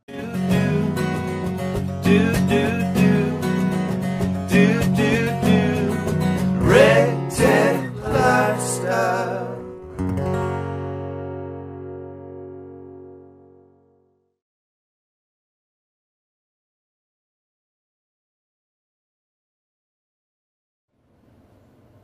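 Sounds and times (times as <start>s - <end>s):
country music with acoustic guitar: 0.0s - 14.0s.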